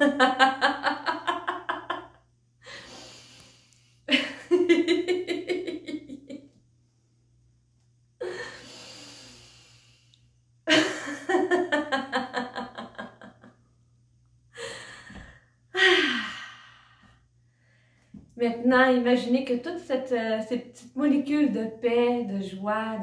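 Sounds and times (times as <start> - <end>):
woman laughing heartily: 0.0 - 2.9, 4.1 - 6.6, 10.7 - 13.6, 14.6 - 16.4
woman breathing in: 2.6 - 4.1, 8.2 - 10.2, 14.6 - 18.2
woman sighing: 14.6 - 17.0.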